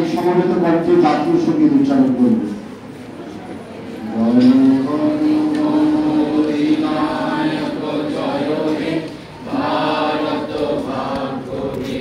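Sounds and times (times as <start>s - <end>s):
group of voices singing: 4.2s - 12.0s.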